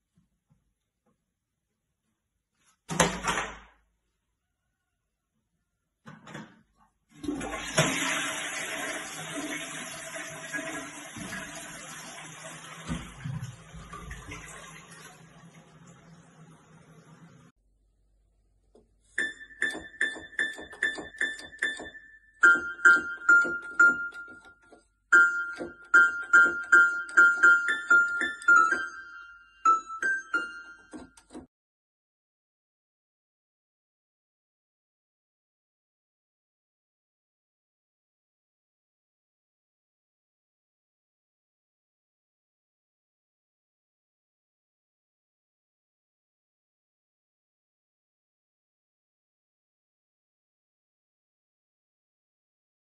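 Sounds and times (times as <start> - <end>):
toilet flushing: 7.1 - 17.5
electronic keyboard notes: 19.2 - 31.5.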